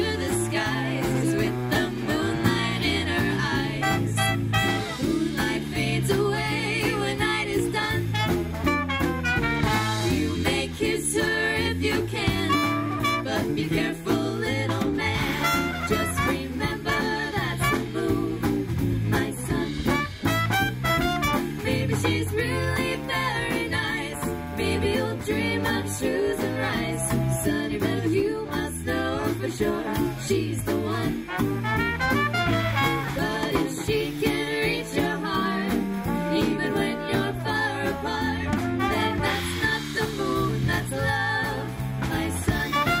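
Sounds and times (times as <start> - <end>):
women singing together: 0.0 - 8.3, 9.6 - 20.1, 21.6 - 31.5, 32.9 - 43.0
bass guitar and drums: 0.0 - 43.0
swing band playing: 0.0 - 43.0
horn section playing: 3.7 - 5.1, 8.1 - 10.1, 12.4 - 13.6, 15.2 - 18.0, 19.9 - 21.7, 31.3 - 33.4, 35.8 - 39.6, 42.6 - 43.0.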